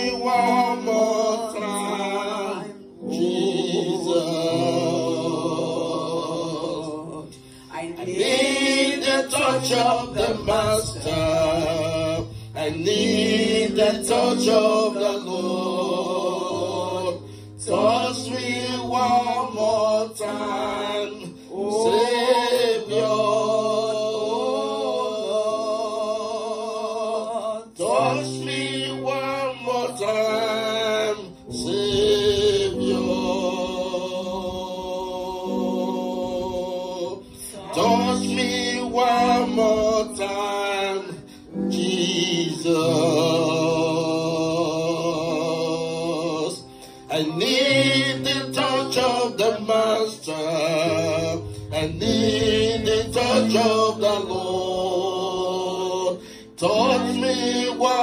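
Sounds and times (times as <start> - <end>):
held accompaniment chords: 0.0 - 58.0
woman singing through microphone: 37.4 - 40.1.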